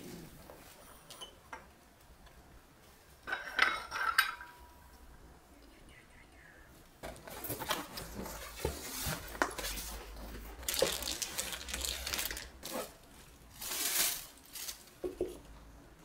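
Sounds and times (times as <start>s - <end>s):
plastic packaging crinkling: 7.2s - 15.2s.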